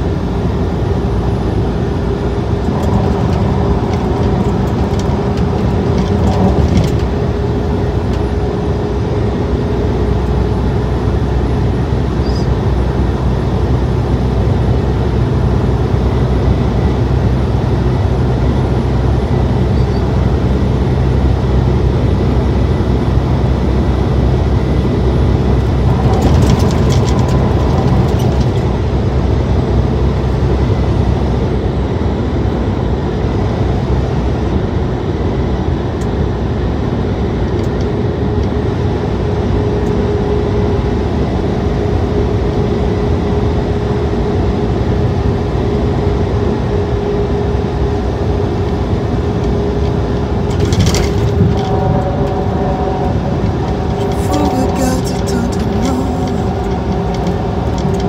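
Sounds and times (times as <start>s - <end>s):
truck engine and tyre drone: 0.0s - 58.0s
steady higher hum: 51.6s - 58.0s.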